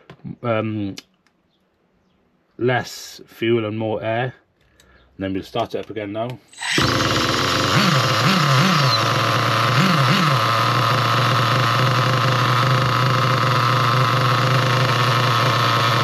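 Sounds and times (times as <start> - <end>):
model car engine revving and idling: 6.5 - 16.0.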